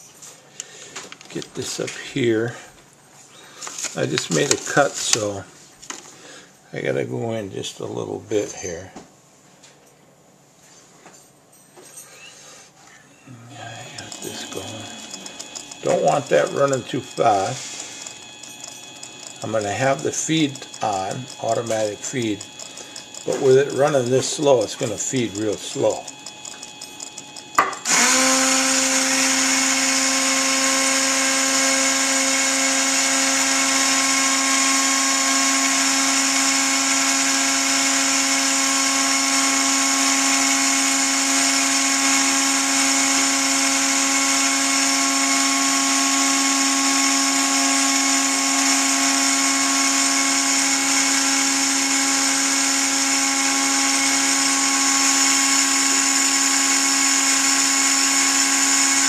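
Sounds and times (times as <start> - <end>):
rotary tool grinding with high whine: 13.5 - 59.0.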